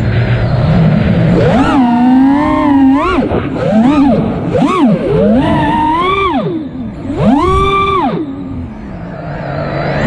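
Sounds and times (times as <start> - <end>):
quadcopter motors whining: 0.0 - 10.0.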